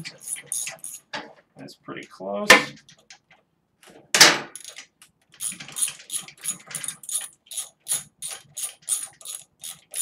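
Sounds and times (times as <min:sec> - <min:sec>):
hand ratchet clicking: 0:05.4 - 0:10.0.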